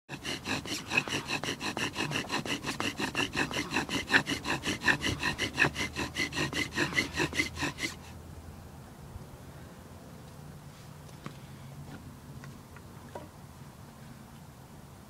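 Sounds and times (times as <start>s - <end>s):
bow drill rasping: 0.1s - 8.1s.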